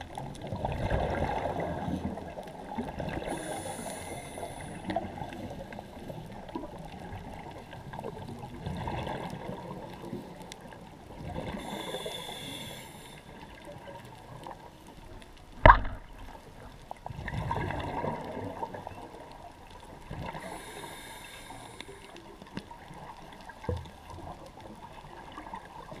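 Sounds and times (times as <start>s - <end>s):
exhaled bubbles: 0.0s - 5.5s, 17.0s - 18.9s
diver inhaling through regulator: 3.2s - 5.2s, 11.5s - 13.4s, 20.3s - 22.2s.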